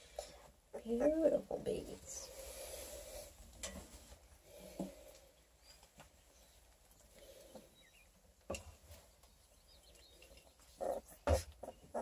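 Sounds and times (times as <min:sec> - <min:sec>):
puppies squeaking: 0:10.7 - 0:12.0.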